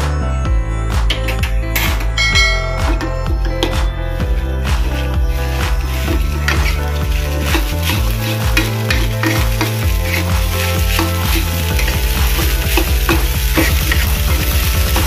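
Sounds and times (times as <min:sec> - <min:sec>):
rice sizzling: 0:04.3 - 0:15.0
metal spatula scraping a wok: 0:05.0 - 0:14.4.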